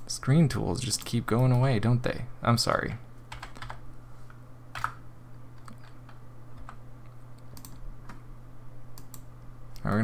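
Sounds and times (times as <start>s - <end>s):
steady low hum: 0.0s - 10.0s
keyboard key clicks: 7.4s - 8.2s
mouse clicks: 7.4s - 8.2s, 9.0s - 10.0s.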